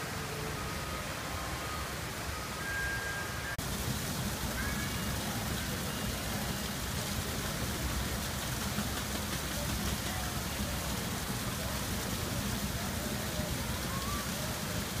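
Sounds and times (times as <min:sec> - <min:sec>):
faint chirp-like glides: 0:00.0 - 0:03.6
waterfall splashing on rocks: 0:03.6 - 0:15.0.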